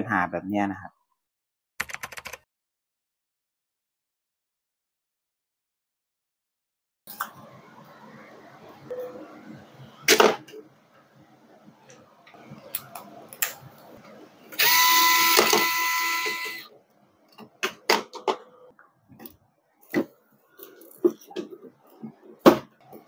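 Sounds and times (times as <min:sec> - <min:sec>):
electric screwdriver whine: 0:14.6 - 0:16.7.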